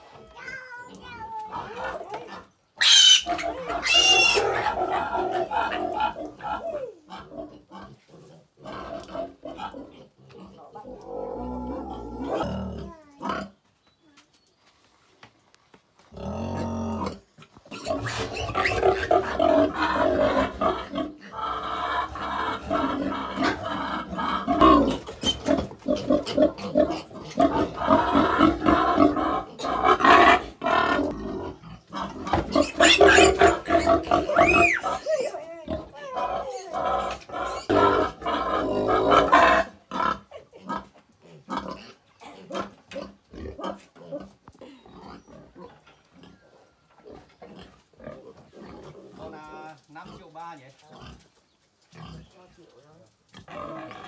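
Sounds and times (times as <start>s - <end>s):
piglets squealing: 2.8s - 7.6s, 17.7s - 31.1s, 32.0s - 38.3s.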